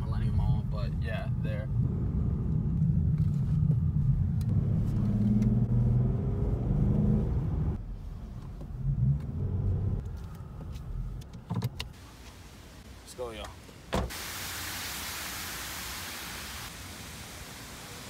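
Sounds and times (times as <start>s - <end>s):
car engine: 0.0s - 11.9s
road rumble: 0.0s - 14.3s.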